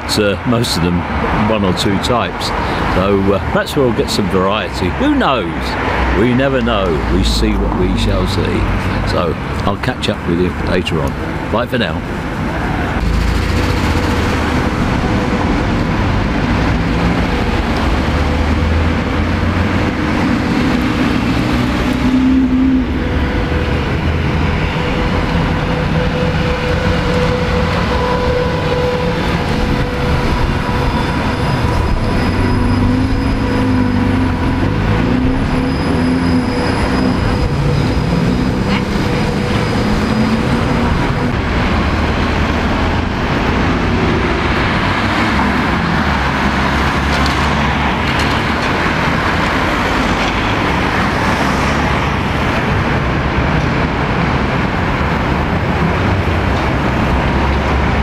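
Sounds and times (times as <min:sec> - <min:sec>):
trolleybuses and cars passing: 0:00.0 - 0:58.0.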